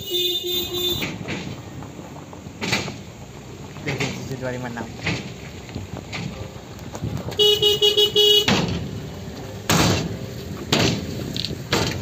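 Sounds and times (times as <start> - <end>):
car horn toots: 0.0 - 1.2, 7.3 - 8.8.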